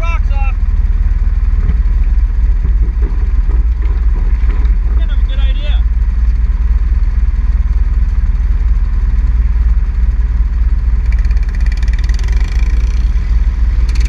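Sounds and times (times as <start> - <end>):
quad engines idling: 0.0 - 14.0
quad engine pulling away: 10.1 - 14.0.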